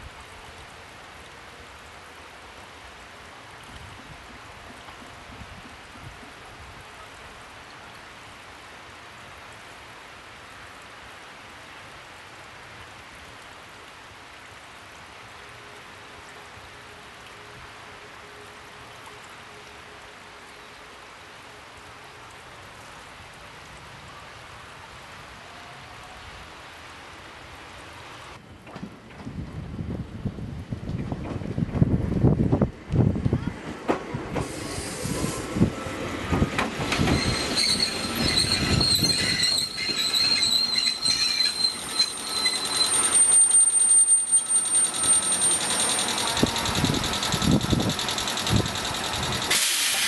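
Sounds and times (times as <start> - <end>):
rumble inside a train: 0.1 - 8.0, 15.0 - 50.0
hiss and patter: 32.9 - 38.4, 44.4 - 50.0.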